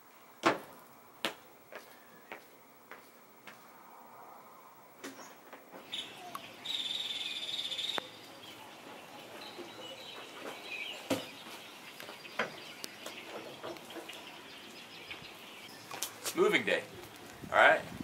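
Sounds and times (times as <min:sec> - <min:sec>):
crickets trilling: 0:00.0 - 0:16.9
birds chirping: 0:05.1 - 0:17.3.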